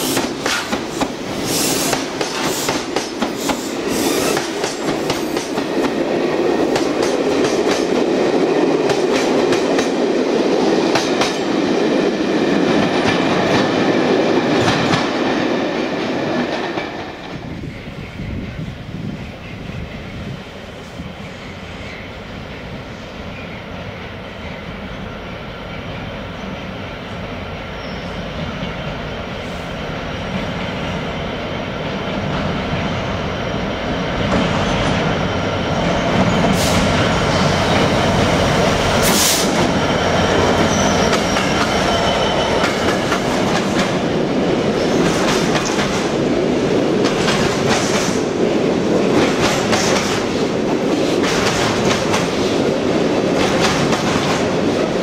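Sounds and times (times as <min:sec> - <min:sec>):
train wheel clatter: 0:00.0 - 0:10.1, 0:10.8 - 0:17.4, 0:34.2 - 0:55.0
freight train rumble: 0:00.0 - 0:55.0
wheel squeal: 0:03.9 - 0:04.5, 0:39.7 - 0:42.9.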